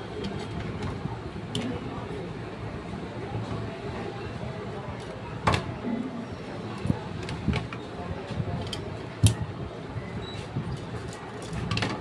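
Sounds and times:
clicks and knocks of metal parts: 0:08.6 - 0:09.4, 0:10.8 - 0:12.0.

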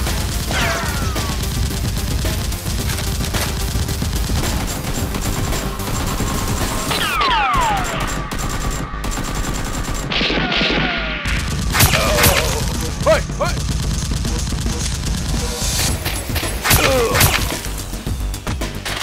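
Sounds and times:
gunfire shots: 0:00.0 - 0:18.0
whizzing ricochets: 0:11.8 - 0:12.7, 0:16.4 - 0:17.7.

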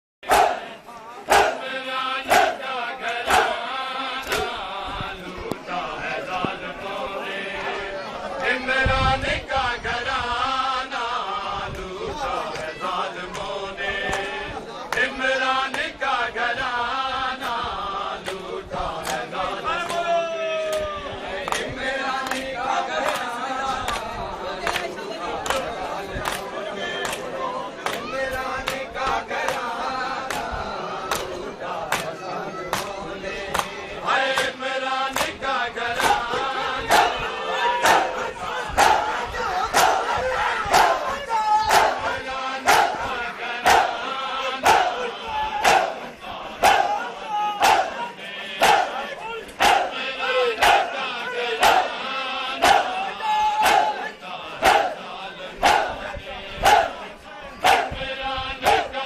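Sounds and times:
men chanting together: 0:00.2 - 0:59.0
hands slapping on chests: 0:04.2 - 0:04.5, 0:19.0 - 0:19.2, 0:20.7 - 0:23.3, 0:29.4 - 0:30.5, 0:31.1 - 0:35.4, 0:36.0 - 0:36.3
sharp rhythmic smacks: 0:04.2 - 0:04.6, 0:21.4 - 0:36.3, 0:47.6 - 0:48.0, 0:53.6 - 0:54.0.

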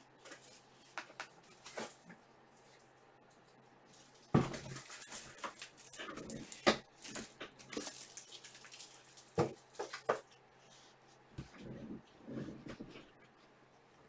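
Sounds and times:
faint low hum: 0:00.0 - 0:14.0
trading cards rustling and tapping: 0:00.3 - 0:02.0.

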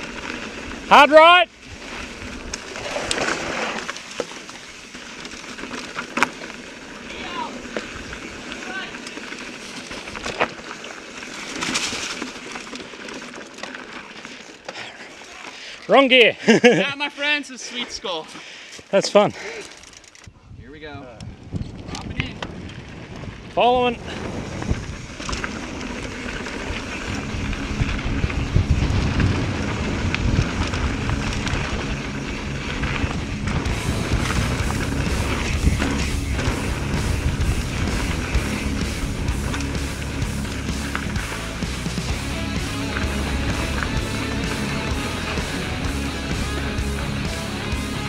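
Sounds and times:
bike tyres over rock: 0:00.0 - 0:20.2, 0:21.3 - 0:48.0
wind buffeting microphone: 0:20.3 - 0:40.4.

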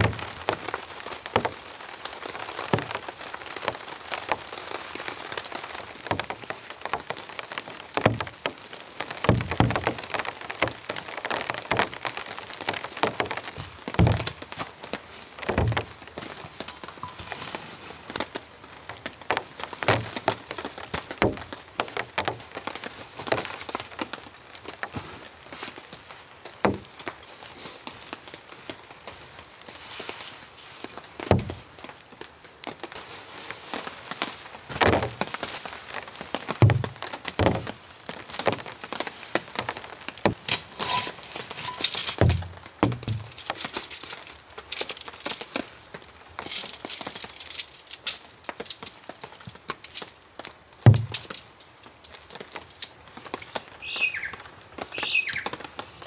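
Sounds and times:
tent fabric rustling: 0:00.0 - 0:06.4, 0:10.9 - 0:21.6, 0:27.2 - 0:31.8, 0:32.5 - 0:56.0
tent poles clicking and knocking: 0:00.0 - 0:28.8, 0:30.8 - 0:33.0, 0:33.8 - 0:56.0
dull thumps: 0:13.9 - 0:14.4, 0:36.6 - 0:37.7, 0:40.3 - 0:43.7, 0:50.8 - 0:51.4.

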